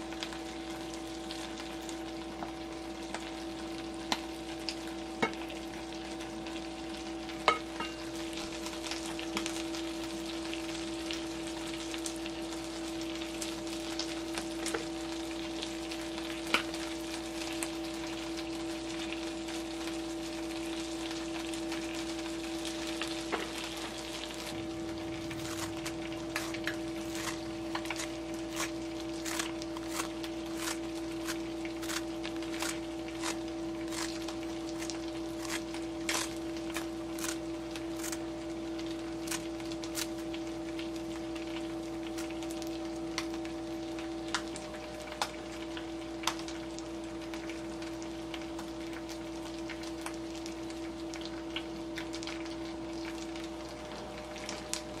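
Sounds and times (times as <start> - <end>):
steady hum: 22.3 - 45.1
scissors snipping nori: 27.1 - 34.2.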